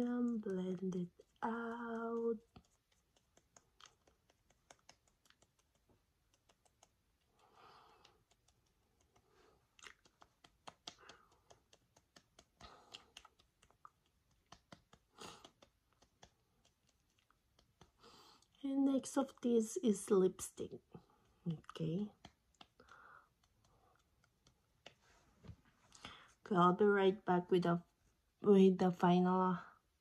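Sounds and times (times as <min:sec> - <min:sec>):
fingertips tapping on skin: 0:00.0 - 0:19.4, 0:20.1 - 0:26.2
fingertips rubbing skin: 0:00.2 - 0:18.6, 0:20.4 - 0:25.7.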